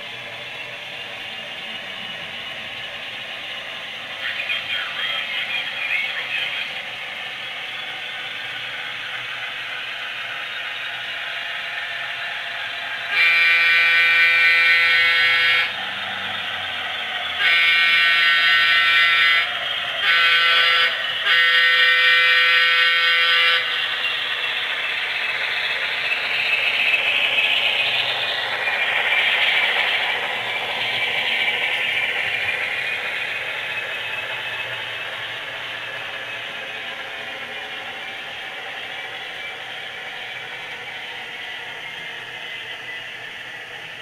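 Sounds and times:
model trains rail clatter: 0:00.0 - 0:44.0
model locomotive horn: 0:13.1 - 0:15.8, 0:17.4 - 0:23.8.

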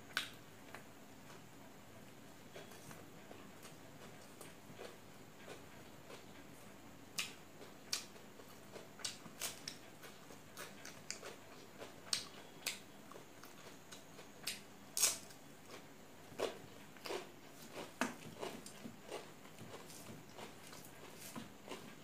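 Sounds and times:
chewing smacks: 0:07.2 - 0:15.8.

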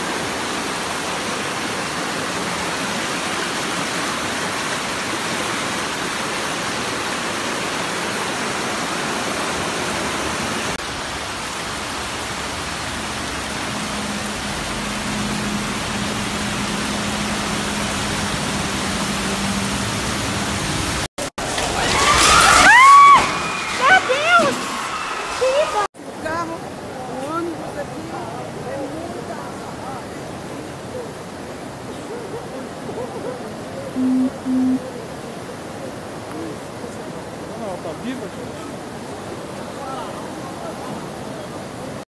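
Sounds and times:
floodwater rushing: 0:00.0 - 0:42.0
low steady hum: 0:34.0 - 0:35.0.

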